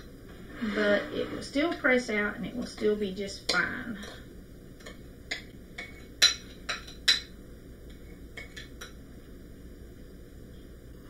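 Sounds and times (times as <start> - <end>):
metal spoon clinking on ceramic bowl: 4.8 - 7.3.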